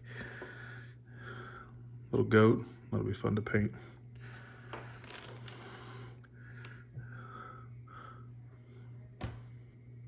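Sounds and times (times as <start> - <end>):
steady low hum: 0.0 - 10.0
plastic bags rustling: 4.9 - 5.7.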